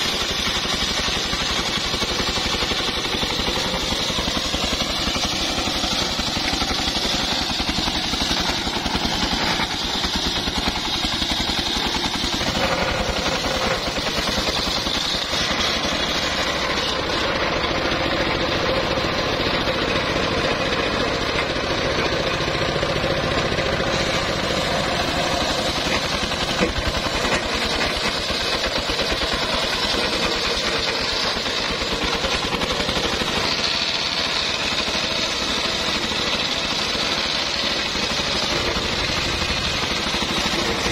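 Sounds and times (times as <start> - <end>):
saw blade cutting log: 0.0 - 40.9
sawmill engine chugging: 0.0 - 40.9.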